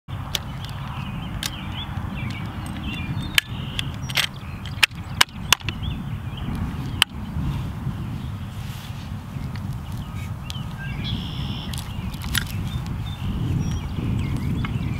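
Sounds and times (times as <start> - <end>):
birds chirping: 0.1 - 14.9
metallic clicks of gun loading: 2.3 - 5.0, 11.7 - 12.6.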